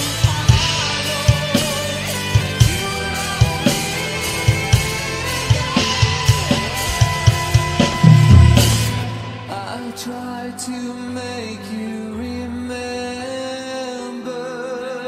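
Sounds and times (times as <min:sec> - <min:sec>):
drum kit playing: 0:00.0 - 0:10.1
rock backing track: 0:00.0 - 0:10.2
accented drum hit ringing out: 0:06.9 - 0:10.0.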